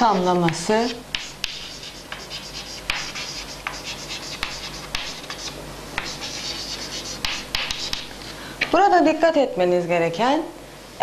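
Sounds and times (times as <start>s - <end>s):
chalk scratching on chalkboard: 0.0s - 8.1s
chalk tapping on board: 0.0s - 8.1s.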